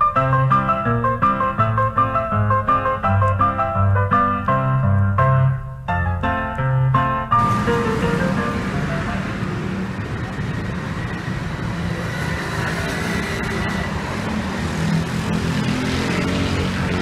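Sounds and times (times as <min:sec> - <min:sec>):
cars passing on road: 0:07.4 - 0:17.0.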